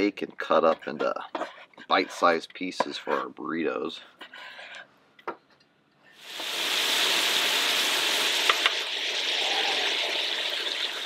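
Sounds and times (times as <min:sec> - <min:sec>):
bacon sizzling on griddle: 0:06.2 - 0:11.0.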